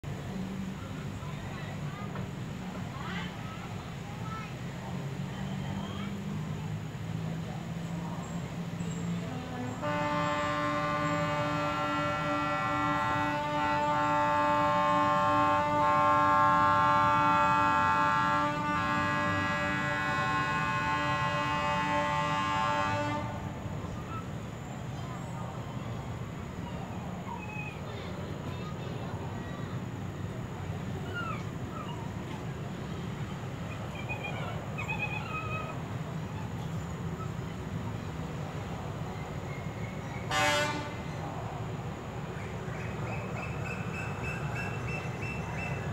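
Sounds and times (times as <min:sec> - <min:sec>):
low rumble of train: 0:00.0 - 0:45.9
locomotive horn blast: 0:09.1 - 0:23.7, 0:40.2 - 0:41.2.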